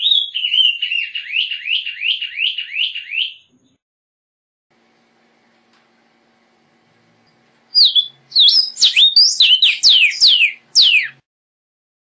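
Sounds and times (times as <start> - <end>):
bird singing clear whistles: 0.0 - 3.5, 7.7 - 11.2.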